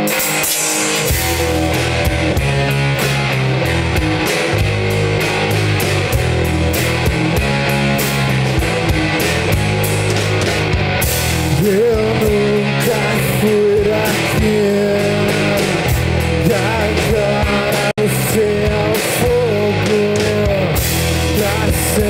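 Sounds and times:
drumbeat: 0:00.0 - 0:13.2
bass guitar: 0:00.0 - 0:22.0
electric guitars: 0:00.0 - 0:22.0.

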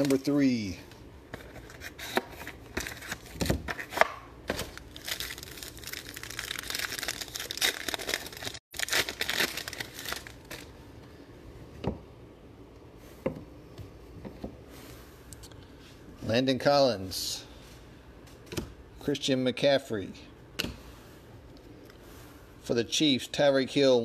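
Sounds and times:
foil pack tearing and crinkling: 0:04.5 - 0:10.7.

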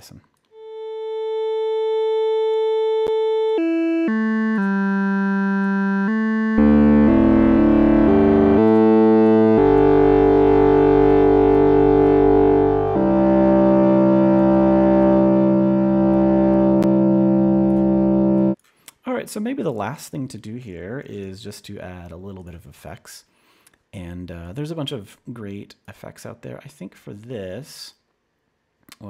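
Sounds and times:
synthesizer notes and chords: 0:00.5 - 0:18.6.

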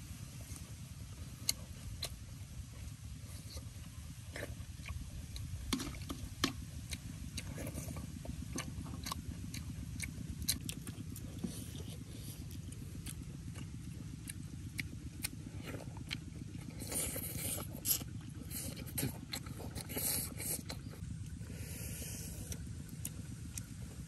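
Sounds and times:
low rumble: 0:00.0 - 0:24.0
slurping and chewing: 0:00.4 - 0:24.0.

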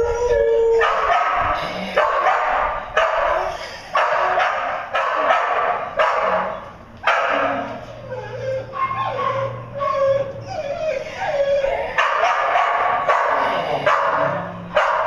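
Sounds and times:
dog barking: 0:00.8 - 0:07.8, 0:11.8 - 0:15.0.

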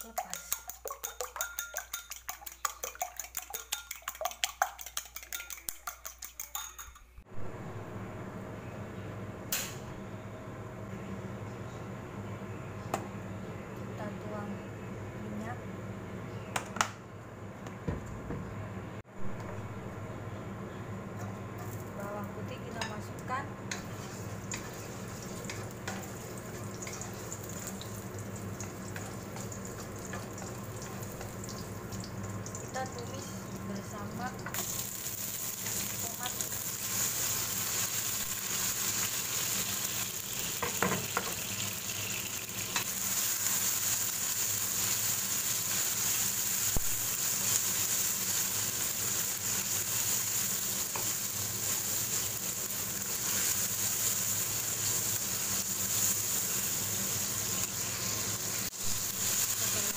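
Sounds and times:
egg beaten in ceramic bowl: 0:00.0 - 0:07.2
garlic sizzling in hot oil: 0:23.7 - 0:59.9.

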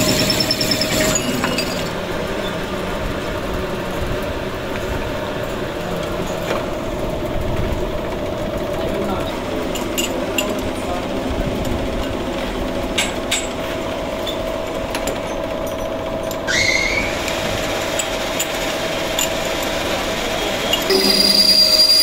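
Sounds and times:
metal clinks and knocks: 0:00.0 - 0:02.0
steady machine hum: 0:00.0 - 0:22.0
short rising squeak: 0:16.4 - 0:17.2, 0:20.7 - 0:22.0.

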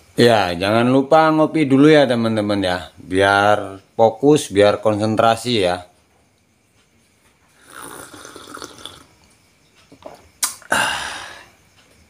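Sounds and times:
person slurping coffee: 0:07.6 - 0:09.1
sharp click: 0:09.9 - 0:10.7.

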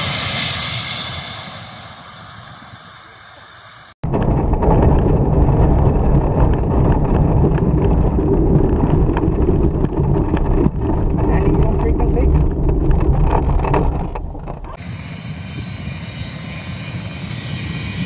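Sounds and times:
jet engines rushing: 0:00.0 - 0:04.5, 0:11.2 - 0:18.0
deep rumble of wind and engine: 0:04.0 - 0:18.0.

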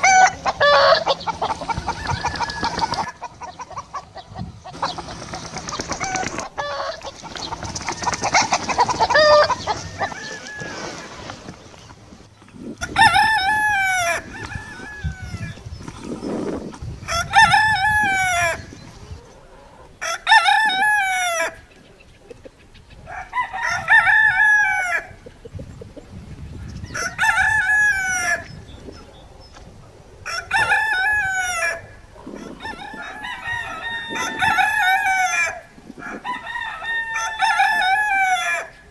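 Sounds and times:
rooster crowing: 0:00.0 - 0:03.2, 0:09.0 - 0:11.3, 0:12.8 - 0:15.6, 0:20.0 - 0:21.6, 0:23.1 - 0:25.2, 0:26.9 - 0:28.4, 0:30.2 - 0:38.8.

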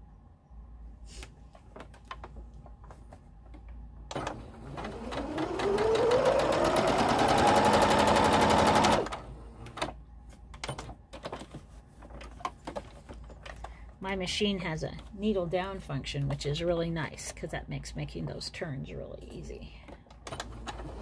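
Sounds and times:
sewing machine stitching: 0:04.1 - 0:09.9, 0:20.3 - 0:21.0.

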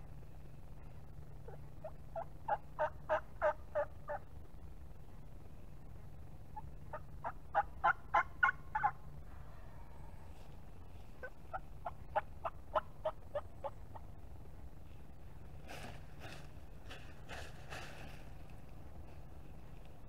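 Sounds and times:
turkey yelping: 0:01.4 - 0:04.3, 0:06.4 - 0:14.2.

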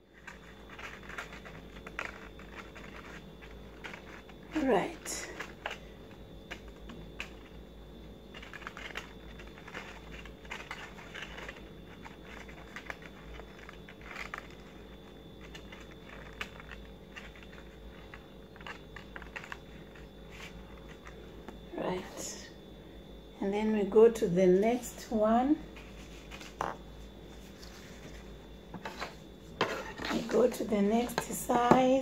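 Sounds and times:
low steady hum: 0:00.0 - 0:32.0
paper rustling: 0:00.1 - 0:07.6, 0:08.3 - 0:21.3, 0:25.8 - 0:31.7.

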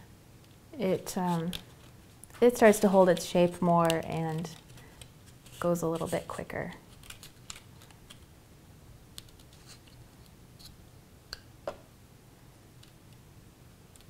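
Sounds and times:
paper rustling and handling: 0:01.0 - 0:08.3.

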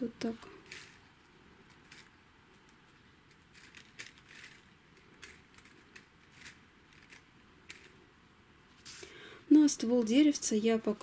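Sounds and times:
crinkly rustling of sequin leaves: 0:00.2 - 0:08.0.

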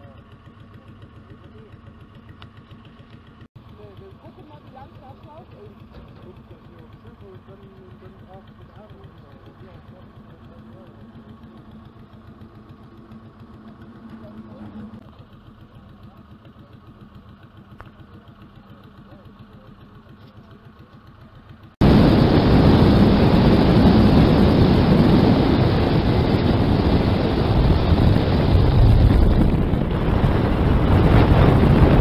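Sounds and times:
pump engines chugging: 0:00.0 - 0:21.7
wind blowing on microphone: 0:21.8 - 0:32.0.

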